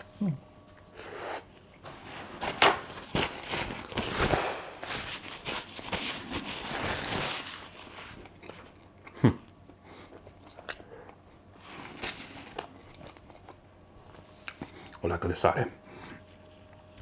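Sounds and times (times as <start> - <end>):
person chewing bread: 6.4 - 15.0.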